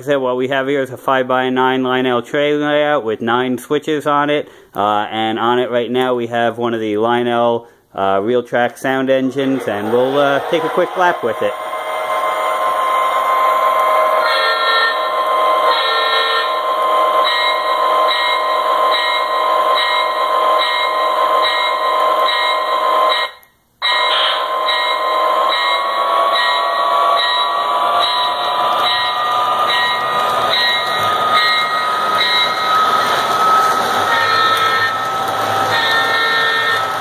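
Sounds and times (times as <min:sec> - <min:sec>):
electronic diesel engine drone: 0:09.3 - 0:23.2, 0:23.9 - 0:37.0.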